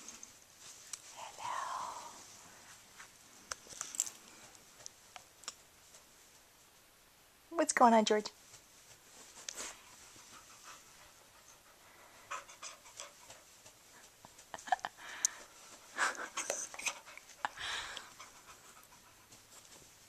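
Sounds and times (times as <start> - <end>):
dog panting: 9.6 - 20.0.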